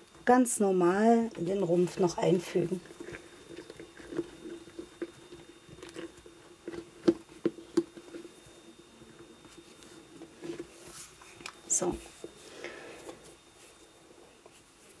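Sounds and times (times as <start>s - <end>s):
steady low hum: 0.0s - 15.0s
vinyl doll parts rubbing and clicking: 1.1s - 12.4s.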